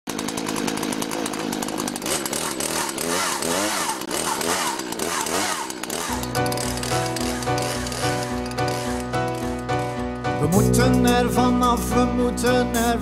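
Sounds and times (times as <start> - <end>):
chainsaw revving: 0.1 - 10.4
music with bass line: 8.2 - 13.0.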